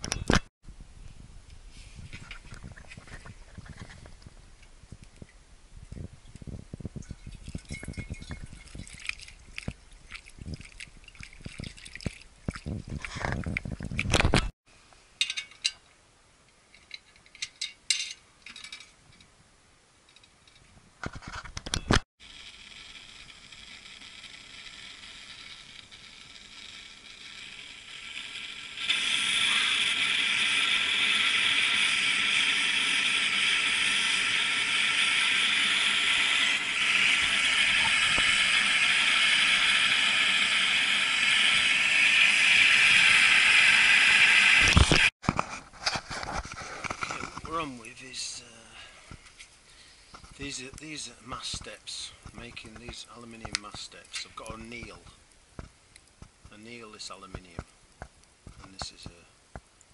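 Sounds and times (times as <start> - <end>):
blowlamp burner hissing: 22.2 - 45.1.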